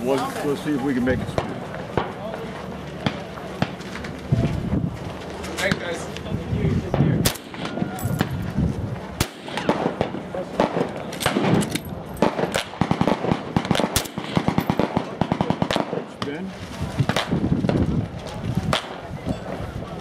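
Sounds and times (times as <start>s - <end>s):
faint gunfire cracks: 6.9s - 8.4s, 9.2s - 16.4s, 18.7s - 19.1s
rifle shots: 6.9s - 8.4s, 9.2s - 16.4s.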